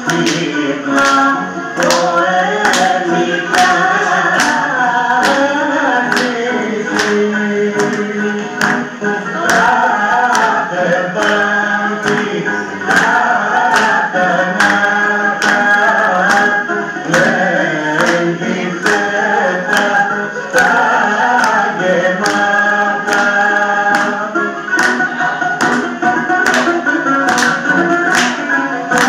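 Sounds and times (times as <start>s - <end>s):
instrumental accompaniment: 0.0s - 29.0s
person singing melody: 0.0s - 29.0s.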